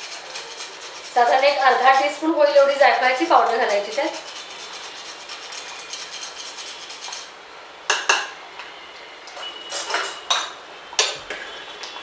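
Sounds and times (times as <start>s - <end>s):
nutmeg rasping on metal grater: 0.0s - 7.3s
metal utensils clinking: 9.4s - 11.6s.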